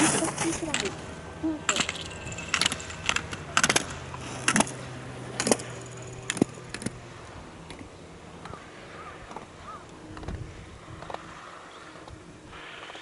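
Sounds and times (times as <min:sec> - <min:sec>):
low steady hum: 0:00.0 - 0:13.0
sharp clicks and clatters: 0:01.7 - 0:04.8.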